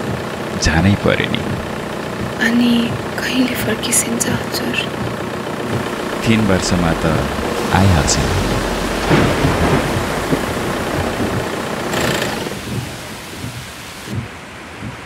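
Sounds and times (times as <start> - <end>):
heavy rain falling: 0.0 - 15.0
low rumble of thunder: 5.0 - 13.7.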